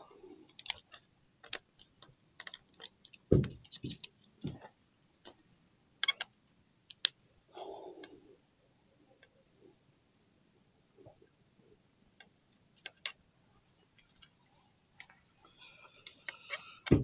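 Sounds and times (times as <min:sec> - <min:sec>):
tools and bolts clinking: 0:13.8 - 0:16.2.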